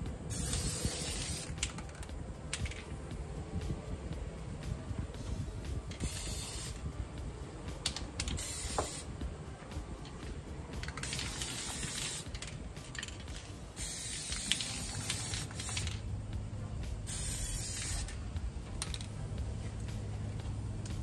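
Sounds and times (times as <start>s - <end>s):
aerosol can spraying: 0.3s - 2.0s, 5.2s - 6.9s, 7.8s - 9.2s, 10.8s - 13.2s, 13.8s - 16.1s, 17.0s - 18.3s.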